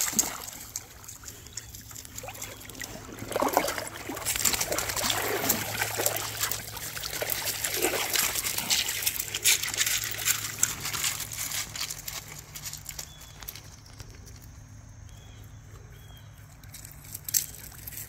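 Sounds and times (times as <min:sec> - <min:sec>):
dogs splashing in water: 0:00.0 - 0:13.0
paws crunching on gravel: 0:00.0 - 0:18.0.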